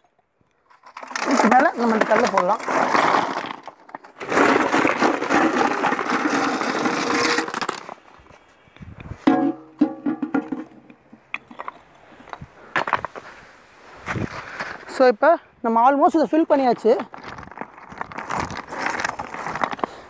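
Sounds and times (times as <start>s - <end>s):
stones pouring and rattling: 0.6s - 8.0s, 17.1s - 19.9s.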